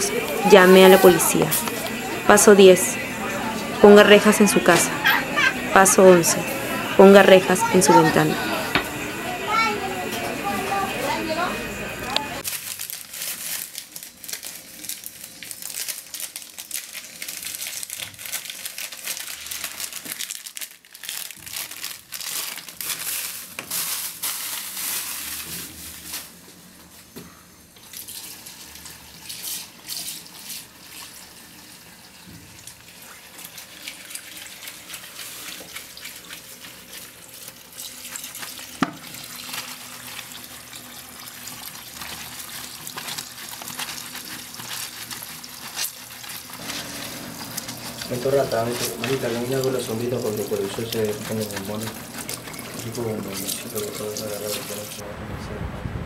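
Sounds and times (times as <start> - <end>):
water running from a tap: 27.8 - 55.0
wet cloth scrubbing and sloshing: 33.2 - 55.0.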